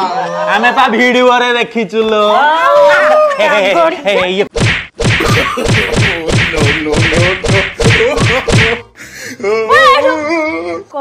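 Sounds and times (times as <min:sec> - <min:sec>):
slapstick whacking hits: 0:04.6 - 0:08.8.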